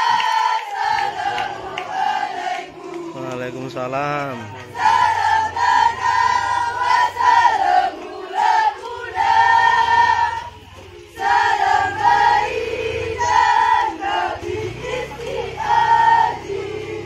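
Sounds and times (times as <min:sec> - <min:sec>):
girls singing in unison: 0:00.0 - 0:03.5, 0:04.6 - 0:17.0.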